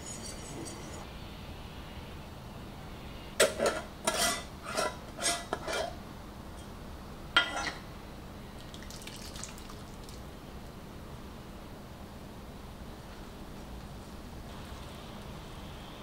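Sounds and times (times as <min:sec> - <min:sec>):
utensils clinking on ceramic bowl: 0:00.0 - 0:01.0.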